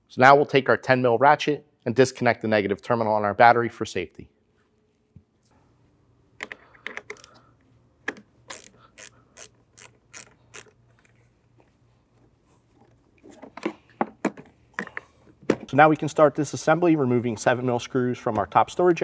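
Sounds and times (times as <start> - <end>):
socket ratchet clicking: 7.0 - 7.4, 8.1 - 10.8.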